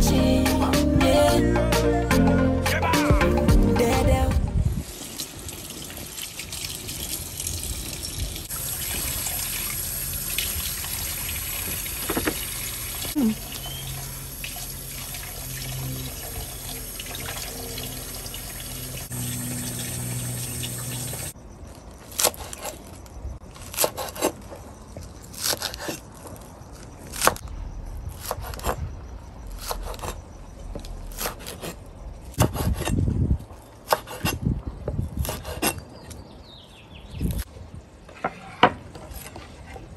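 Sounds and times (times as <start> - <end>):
tap water running into sink: 4.9 - 21.4.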